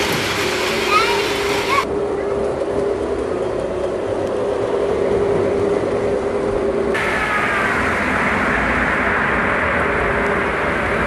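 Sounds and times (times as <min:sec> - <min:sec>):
model train motor hum: 0:00.0 - 0:01.9
freight train rumble and rattle: 0:00.0 - 0:11.0.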